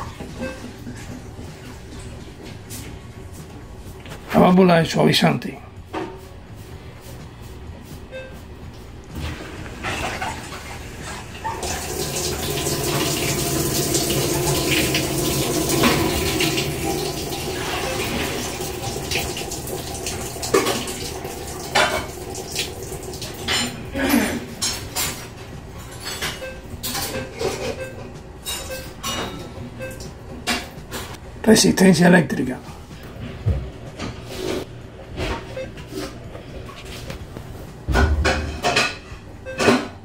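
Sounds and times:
water rushing into washer: 9.2 - 23.5.

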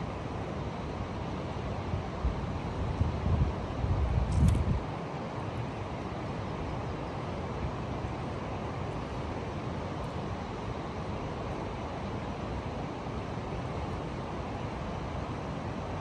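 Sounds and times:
river flowing: 0.0 - 3.9, 4.8 - 16.0
wind rumble on microphone: 1.9 - 4.9.

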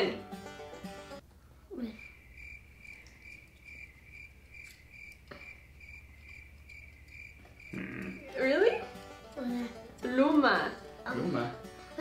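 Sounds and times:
cricket chirping: 1.8 - 8.9.

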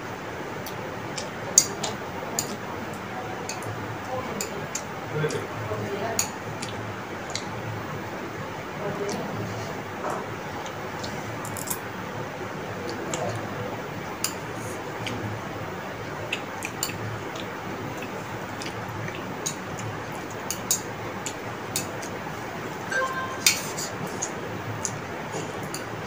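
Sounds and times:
chopsticks clicking on plates: 0.6 - 3.7, 4.3 - 5.5, 6.1 - 7.5, 14.2 - 15.2, 16.3 - 22.2.

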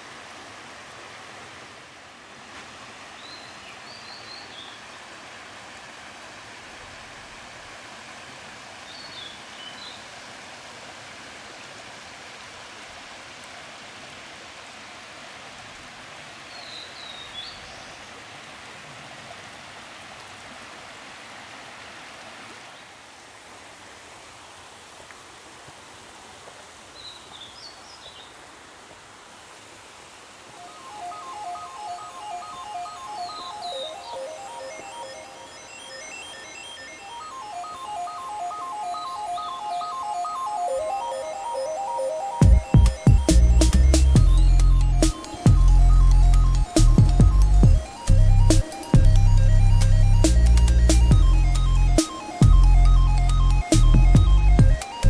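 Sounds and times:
stream running over rocks: 0.0 - 50.1
songbird chirping: 3.1 - 5.0, 16.4 - 18.2, 30.5 - 55.0
music: 30.6 - 55.0.

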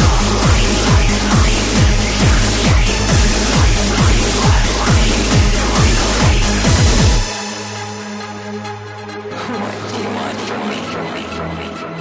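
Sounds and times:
fast kick drum: 0.0 - 7.4
electronic dance music: 0.0 - 12.0
held low synth notes: 0.0 - 12.0.

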